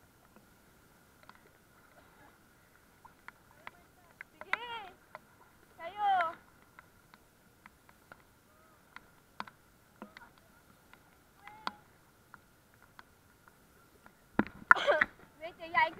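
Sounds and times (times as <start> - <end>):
faint high whine: 0.0 - 12.2
small clicks and knocks: 1.2 - 1.5, 3.1 - 5.3
voice: 3.6 - 5.0, 15.4 - 15.9.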